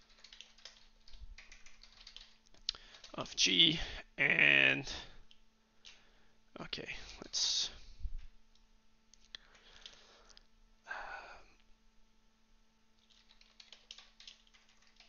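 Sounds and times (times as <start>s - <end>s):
keyboard typing: 0.0s - 3.2s, 13.0s - 15.0s
faint steady hum: 0.0s - 15.0s.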